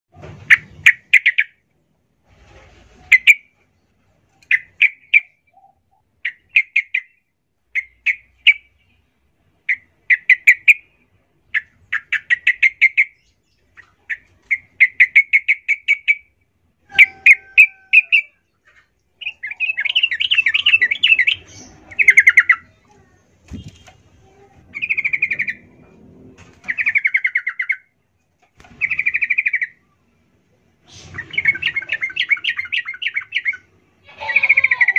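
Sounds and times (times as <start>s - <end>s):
bird singing bubbly phrases: 19.1s - 25.6s.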